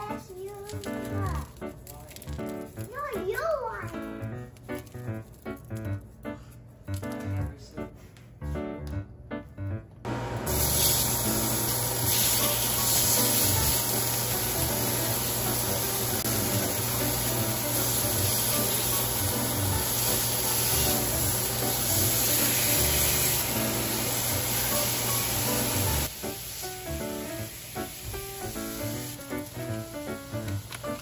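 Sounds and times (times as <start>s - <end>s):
steaks sizzling in frying pan: 10.2s - 31.0s.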